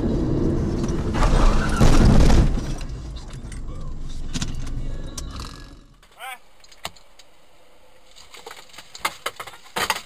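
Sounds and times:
engine and road noise: 0.0s - 10.0s
car crash metal crunch: 0.9s - 3.5s.

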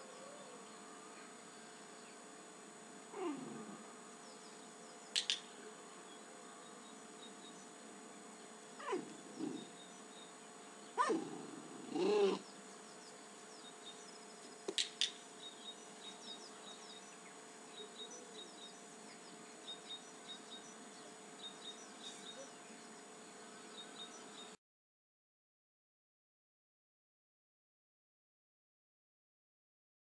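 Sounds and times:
small birds chirping faintly: 0.0s - 24.6s
puppy whining: 3.2s - 3.8s, 8.8s - 9.7s, 11.0s - 12.4s.

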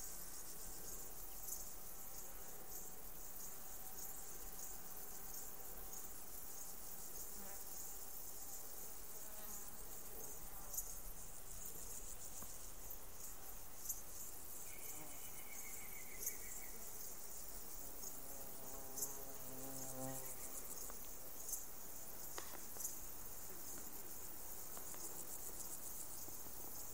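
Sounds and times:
insects trilling: 0.0s - 26.9s.

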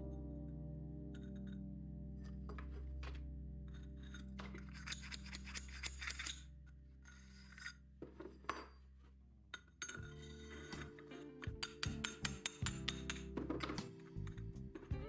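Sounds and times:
soft background music: 0.0s - 9.1s, 9.8s - 15.0s
metal tube scraping: 3.8s - 8.5s, 9.9s - 11.2s
metal clinking: 9.5s - 14.9s.

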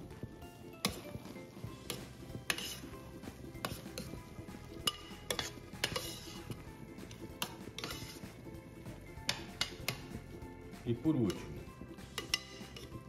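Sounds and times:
soft background music: 0.0s - 13.0s
metal spoon scraping a pot: 0.8s - 8.5s, 9.1s - 10.3s, 11.2s - 13.0s
spoon clinking against rim: 11.3s - 13.0s.

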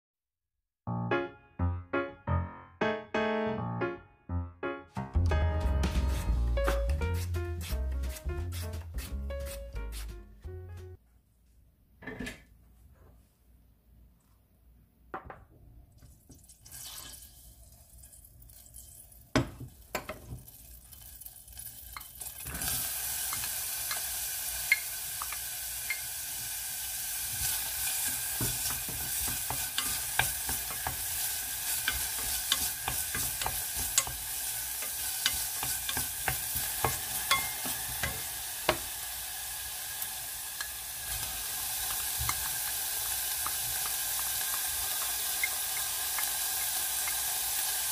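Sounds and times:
onion sizzling in butter: 5.6s - 10.5s, 20.2s - 47.9s
wooden spoon scraping a pan: 5.8s - 10.2s, 27.4s - 38.8s.

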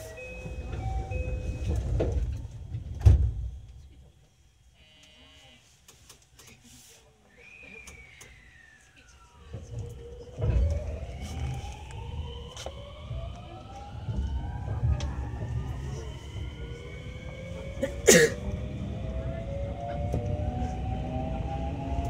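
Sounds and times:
train running rumble: 9.8s - 22.0s.

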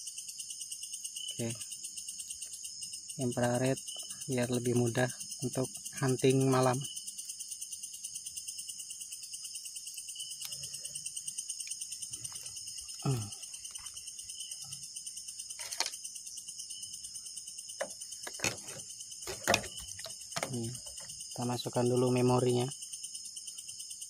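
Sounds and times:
crickets chirping: 0.0s - 24.0s
handling knocks: 17.8s - 21.1s.

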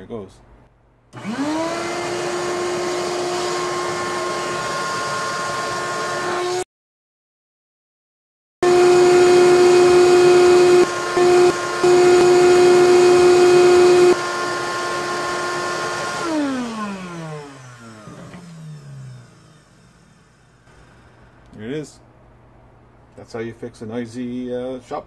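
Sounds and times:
shop vacuum motor whining: 1.1s - 6.6s, 8.6s - 21.7s.

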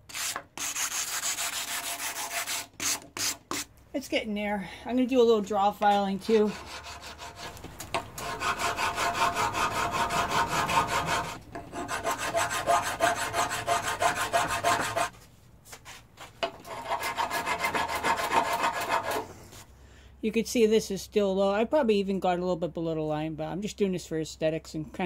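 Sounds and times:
file rasping on metal: 0.1s - 3.7s, 6.2s - 15.1s, 16.4s - 19.3s.

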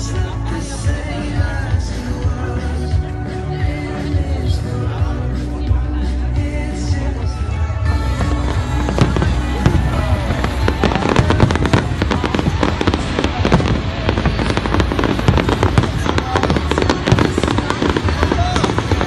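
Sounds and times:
fireworks bangs and crackles: 7.4s - 19.0s.

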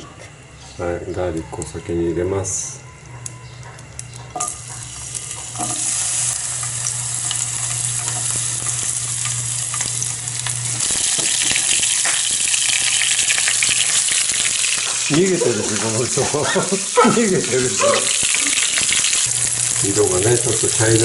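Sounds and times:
low hum: 4.4s - 12.6s
garlic sizzling in oil: 4.4s - 21.0s.

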